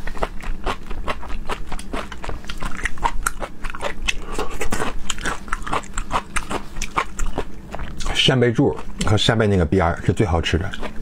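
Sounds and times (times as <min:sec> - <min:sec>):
wet chewing clicks: 0:00.0 - 0:09.3, 0:10.5 - 0:11.0.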